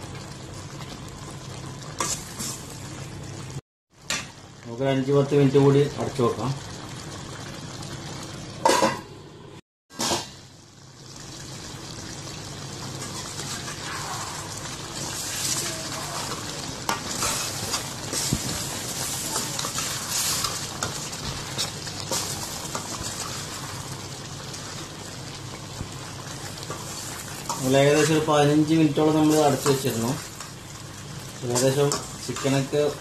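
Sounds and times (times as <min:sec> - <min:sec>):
curry bubbling and sizzling: 0:00.0 - 0:33.0
spatula scraping a pan: 0:13.0 - 0:23.5.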